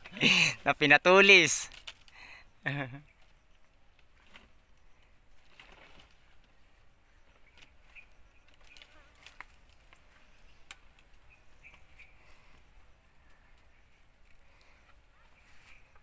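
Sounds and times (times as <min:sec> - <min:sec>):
small sharp clicks: 0:10.6 - 0:11.8.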